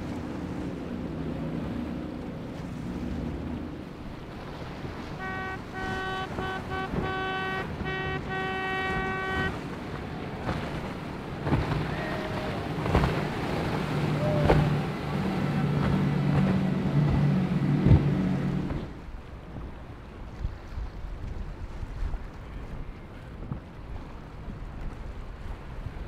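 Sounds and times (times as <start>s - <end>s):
motorboat engines: 0.0s - 26.0s
water rushing: 0.0s - 26.0s
high-pitched tone: 5.2s - 9.6s.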